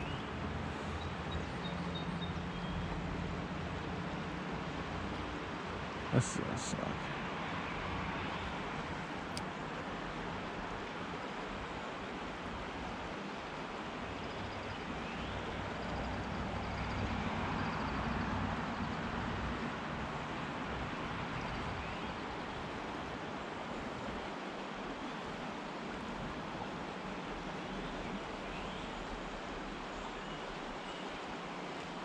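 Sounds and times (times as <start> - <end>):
rocky river rushing: 22.1 - 32.0.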